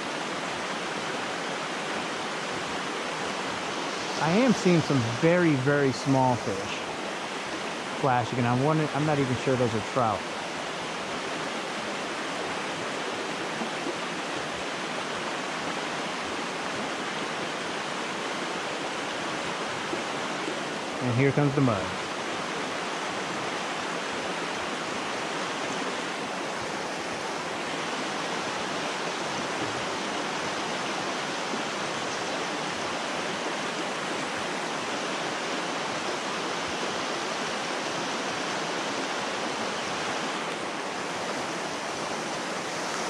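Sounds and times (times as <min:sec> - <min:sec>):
creek running over rocks: 0:00.0 - 0:43.0.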